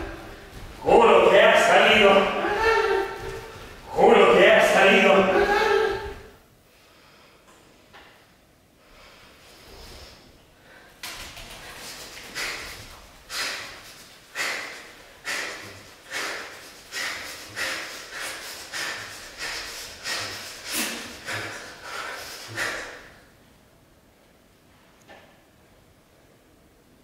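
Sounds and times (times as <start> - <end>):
sharp forceful breaths: 0.0 - 7.5, 8.8 - 23.3.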